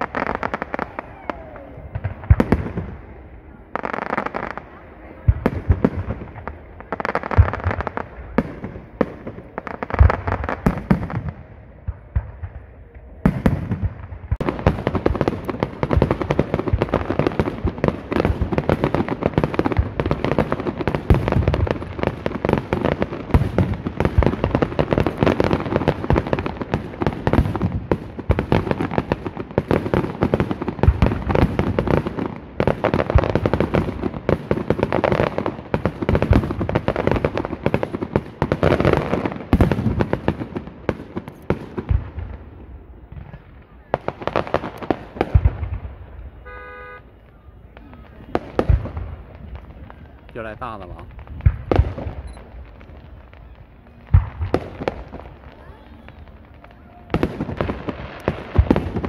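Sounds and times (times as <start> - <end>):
fireworks bursting: 0.0 - 59.0.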